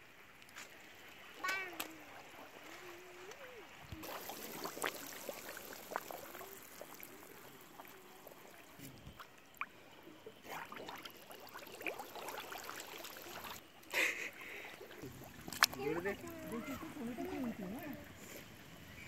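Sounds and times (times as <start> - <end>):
water sloshing and trickling: 0.0 - 19.0
small plops at water surface: 2.7 - 9.8, 14.6 - 18.0.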